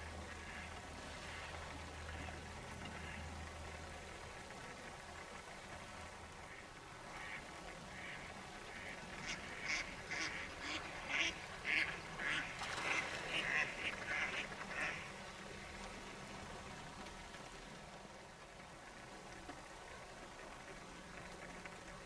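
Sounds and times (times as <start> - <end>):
ducks quacking: 7.2 - 15.1.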